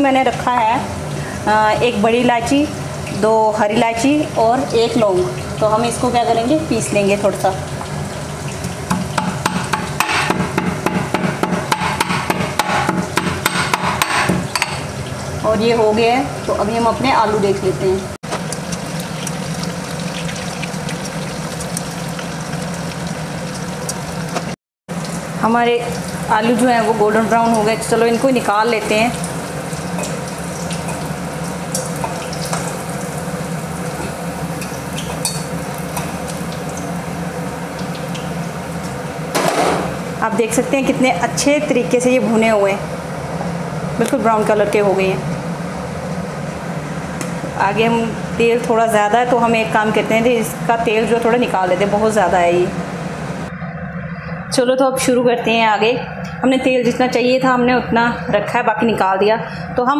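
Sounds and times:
steady low hum: 0.0 - 59.9
potatoes sizzling in hot oil: 0.9 - 10.0, 18.3 - 40.0
pestle pounding in metal mortar: 8.8 - 14.8.

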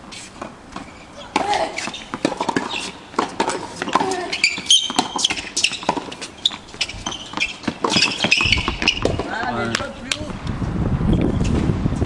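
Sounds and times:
shoe squeaks: 0.2 - 9.6
rackets striking tennis balls: 0.4 - 10.4
balls bouncing on court: 0.7 - 10.4.

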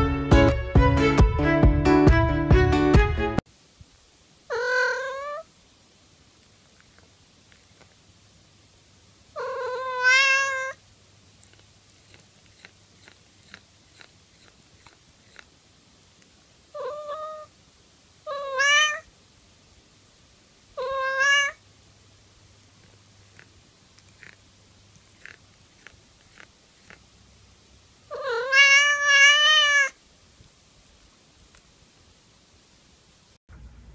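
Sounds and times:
cat meowing: 4.5 - 5.5, 9.4 - 10.8, 16.7 - 17.5, 18.2 - 19.1, 20.8 - 21.6, 28.1 - 30.0
faint small clicks: 6.4 - 8.0, 11.4 - 15.5, 31.0 - 31.7.

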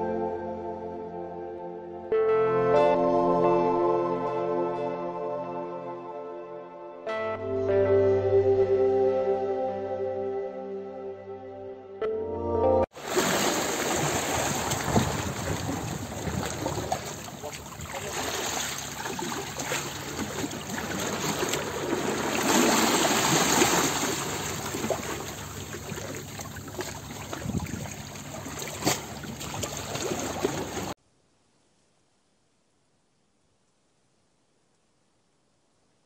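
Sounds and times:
small waves on sandy beach: 12.9 - 31.0.

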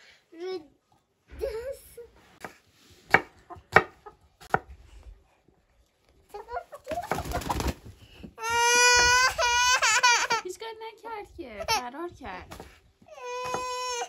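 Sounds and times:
cleaver chopping on wooden board: 3.1 - 4.7, 13.4 - 13.8
hen flapping wings: 6.7 - 8.2.

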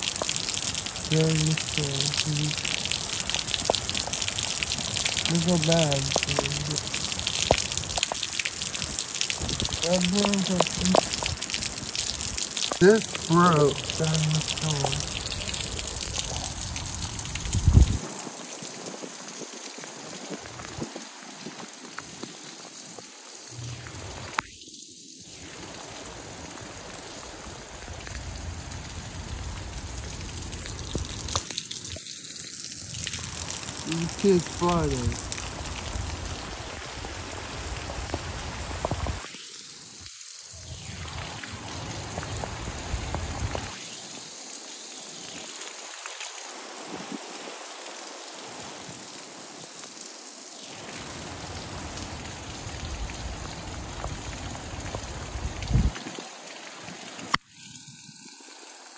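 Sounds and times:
raindrops ticking: 0.0 - 24.5, 27.8 - 39.3, 41.0 - 43.8, 50.8 - 56.6
heavy rain: 0.0 - 58.9.

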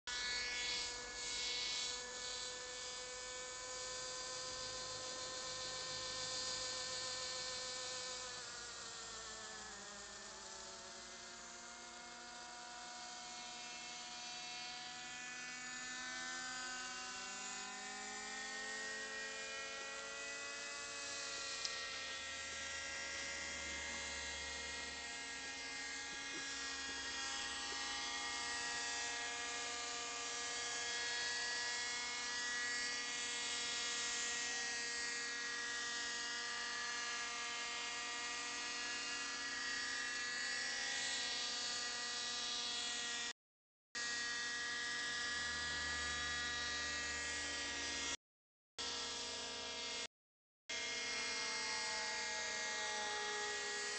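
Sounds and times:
model helicopter engine whine: 0.9 - 36.6.

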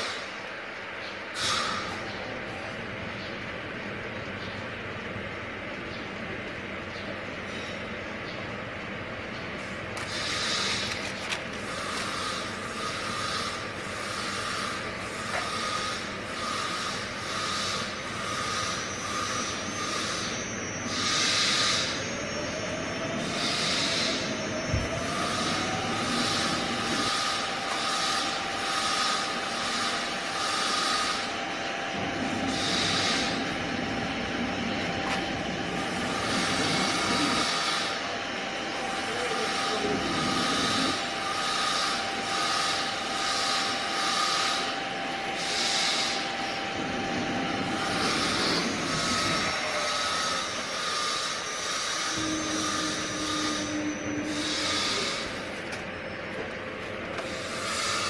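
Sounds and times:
high whine: 0.0 - 58.0
machine running noise: 0.0 - 58.0
hiss: 1.4 - 2.0, 20.9 - 22.0, 32.4 - 33.5, 45.4 - 46.3, 47.8 - 55.4.

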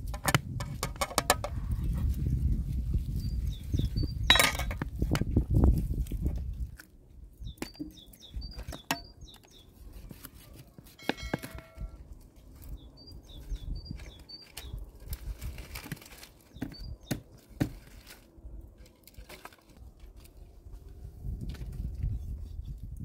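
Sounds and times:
small birds chirping: 1.7 - 4.7, 7.3 - 15.4, 16.2 - 17.5
sticks snapping and clattering: 13.9 - 20.4.

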